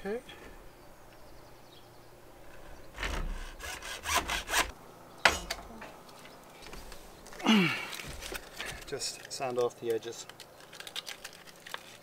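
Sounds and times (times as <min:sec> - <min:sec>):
hacksaw cutting plastic pipe: 0:03.0 - 0:04.7.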